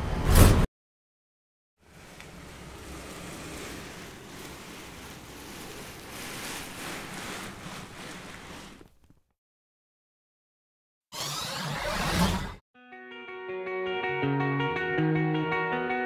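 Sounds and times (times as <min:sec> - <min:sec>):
steady rushing noise: 0:01.8 - 0:08.2.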